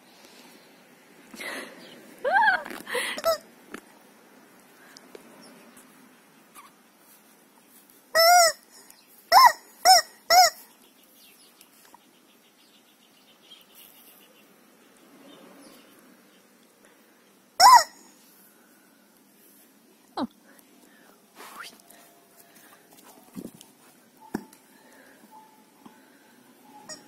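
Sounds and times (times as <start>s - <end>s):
rubber chicken toy squawking: 8.2s - 8.7s, 9.3s - 10.6s, 17.6s - 18.0s.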